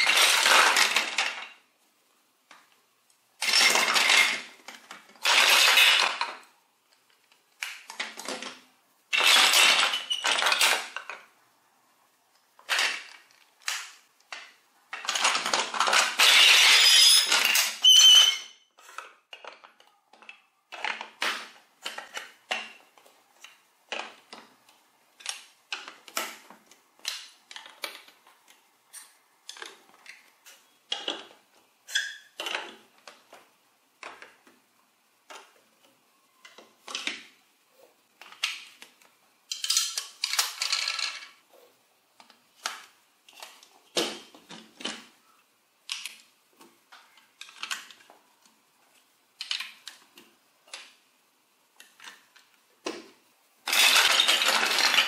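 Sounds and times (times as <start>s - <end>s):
clatter of blocks: 0.0s - 1.6s, 3.4s - 6.5s, 7.6s - 11.3s, 12.6s - 18.4s, 38.2s - 41.4s, 51.8s - 55.0s
plastic blocks clicking: 0.0s - 1.6s, 3.4s - 11.4s, 12.3s - 37.4s, 38.2s - 41.4s, 42.2s - 45.2s, 45.8s - 51.0s, 51.7s - 55.0s.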